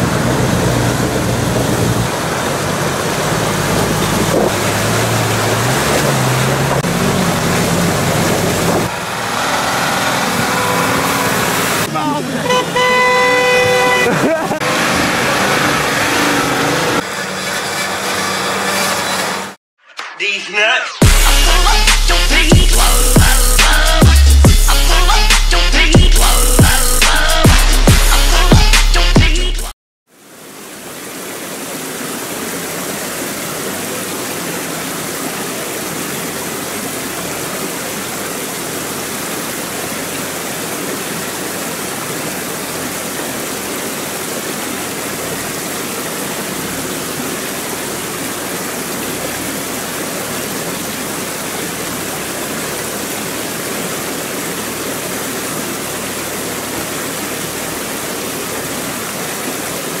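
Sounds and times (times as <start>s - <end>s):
stream rushing over rocks: 0.0s - 17.1s, 30.1s - 60.0s.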